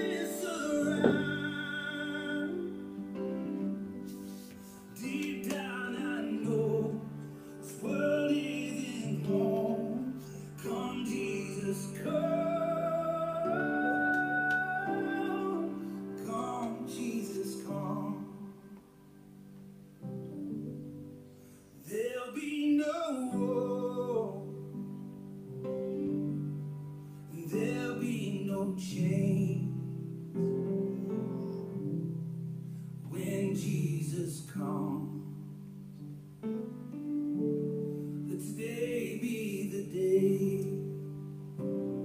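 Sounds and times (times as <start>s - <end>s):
person singing: 0.0s - 19.1s, 21.8s - 25.1s, 27.3s - 31.8s, 33.0s - 35.7s, 38.2s - 42.0s.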